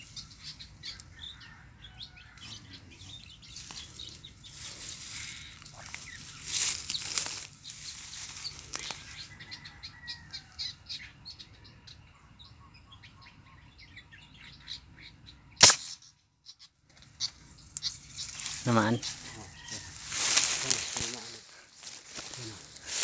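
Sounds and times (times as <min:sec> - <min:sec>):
small birds chirping: 0:00.0 - 0:23.0
rustle: 0:02.3 - 0:09.7, 0:16.9 - 0:23.0
air rifle shot: 0:15.6 - 0:16.1.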